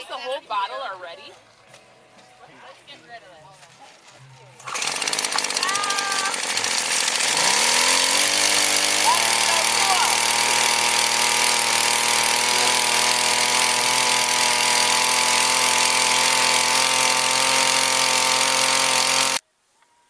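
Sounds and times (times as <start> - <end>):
blender engine running: 4.6 - 19.4.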